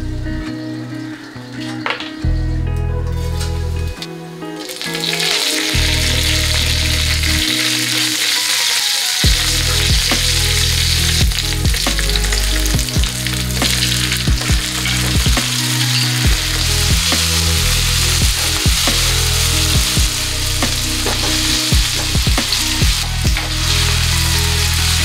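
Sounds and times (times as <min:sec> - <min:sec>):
hot oil sizzling in a pan: 0:04.6 - 0:25.0.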